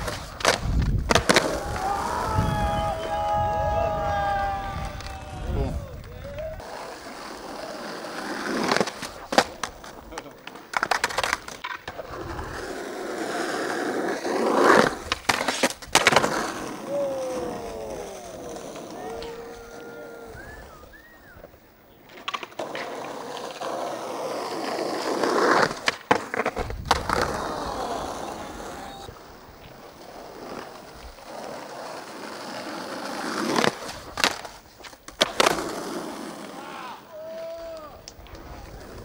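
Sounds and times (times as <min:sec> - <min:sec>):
skateboard clacking on ground: 0:00.0 - 0:02.0, 0:05.9 - 0:20.2, 0:22.0 - 0:36.6
skateboard wheels rolling on concrete: 0:00.0 - 0:39.0.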